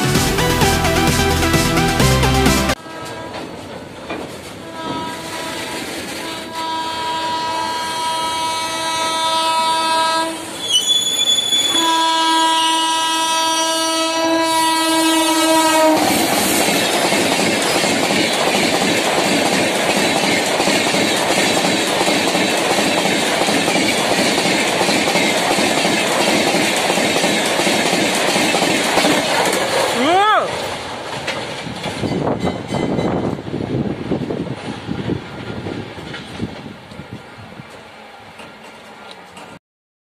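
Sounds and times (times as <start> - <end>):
train coaches rushing past: 0.0 - 7.4, 14.5 - 39.6
locomotive horn blasts: 2.8 - 3.5, 4.6 - 10.8, 11.6 - 16.2.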